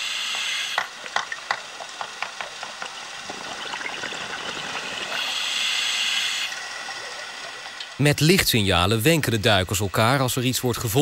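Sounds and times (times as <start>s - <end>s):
bubble clicks and crackles: 1.0s - 5.2s.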